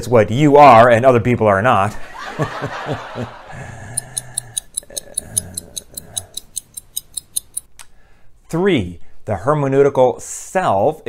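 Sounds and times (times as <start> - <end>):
low vocal sound: 3.4 - 6.4
person speaking: 3.5 - 7.6
clock ticking: 3.9 - 7.7.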